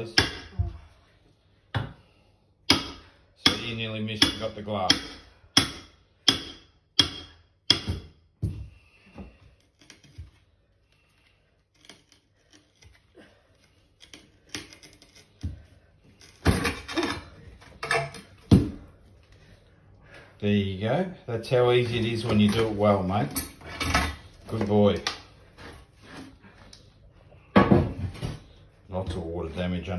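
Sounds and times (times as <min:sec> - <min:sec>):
hammer striking chisel: 0:00.1 - 0:00.5, 0:02.7 - 0:08.2.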